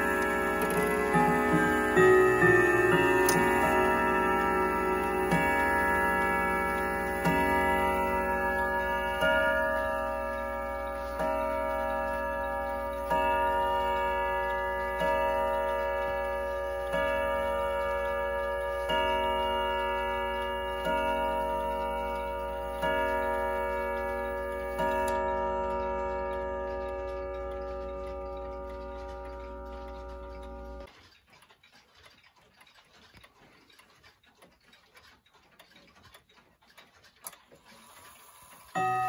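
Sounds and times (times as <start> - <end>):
clock chime strokes: 0.0 - 30.9, 38.7 - 39.0
pendulum ticking: 0.0 - 37.4.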